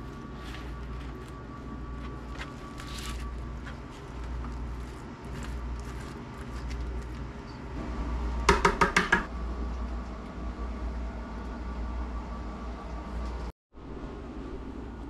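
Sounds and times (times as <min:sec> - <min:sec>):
soft scraping of pumpkin flesh: 0:00.0 - 0:07.3
steady low hum: 0:00.0 - 0:15.0.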